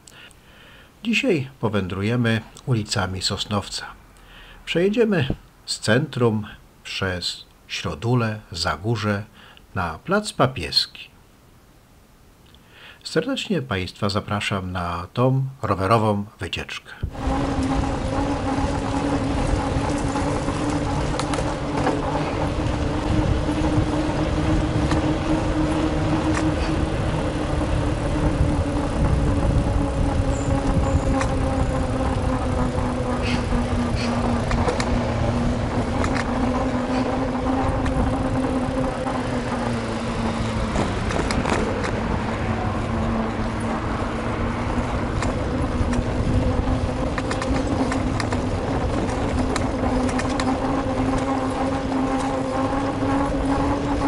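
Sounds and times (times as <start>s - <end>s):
bicycle road and wind noise: 17.0s - 54.0s
low hum: 17.0s - 54.0s.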